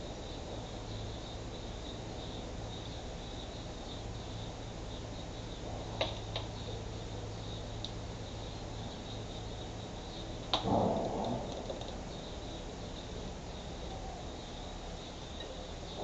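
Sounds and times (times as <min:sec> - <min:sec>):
insects chirping trill: 0:00.0 - 0:16.0
low hum: 0:00.0 - 0:16.0.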